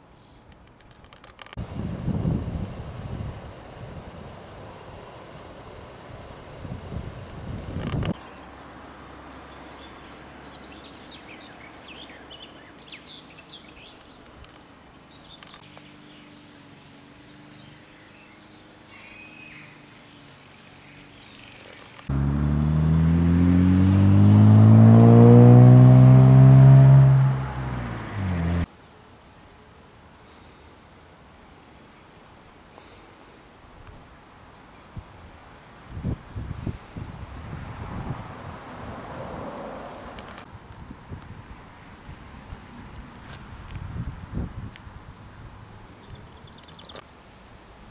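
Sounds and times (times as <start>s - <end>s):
vehicle engine revving: 22.0s - 28.7s.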